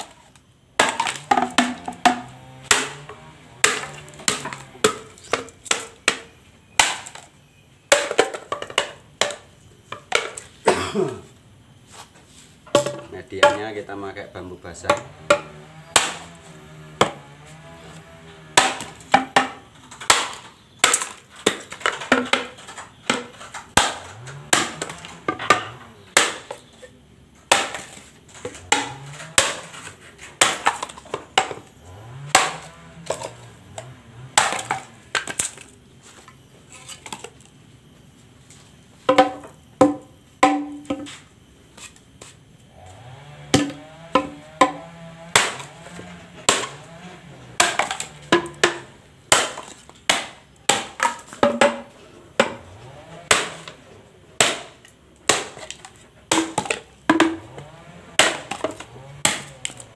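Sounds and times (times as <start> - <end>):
machete chopping bamboo: 0.8 - 7.3, 7.9 - 9.4, 12.7 - 35.8, 39.1 - 53.8, 54.4 - 59.9.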